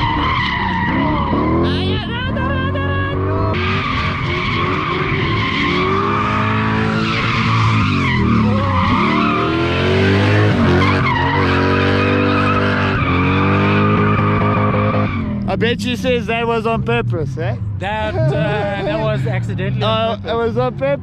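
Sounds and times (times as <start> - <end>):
car engine revving hard: 0.0 - 15.5
tyres squealing: 0.0 - 15.5.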